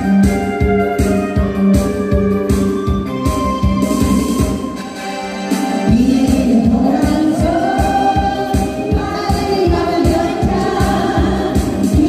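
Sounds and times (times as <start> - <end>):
amplified backing track: 0.0 - 12.0
steady drum beat: 5.6 - 12.0
women singing in unison: 5.9 - 12.0.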